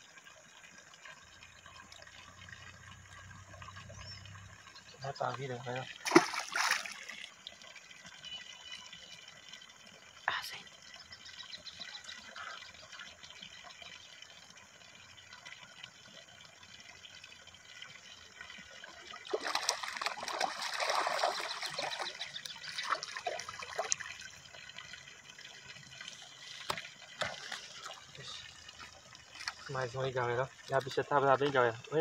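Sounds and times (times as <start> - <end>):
fish splashing in water: 5.8 - 9.1, 18.9 - 29.7.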